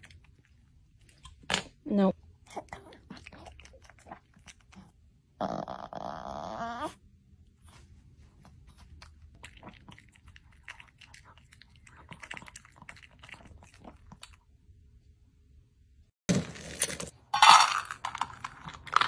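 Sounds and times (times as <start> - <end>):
dog licking and chewing: 8.6 - 14.4.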